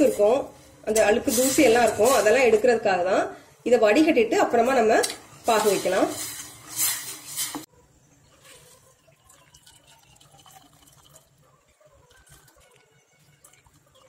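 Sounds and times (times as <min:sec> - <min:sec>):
liquid being strained and poured: 0:08.8 - 0:14.0.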